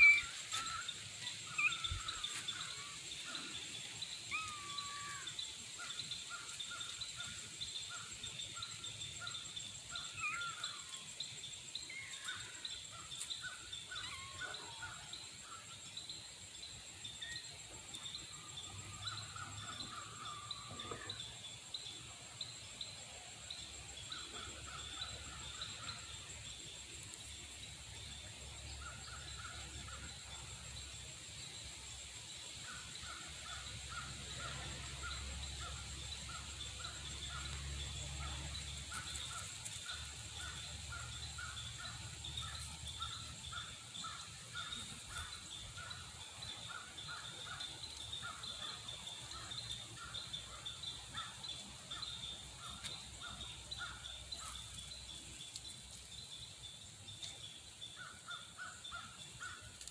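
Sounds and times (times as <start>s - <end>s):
birds chirping: 0.0s - 6.9s.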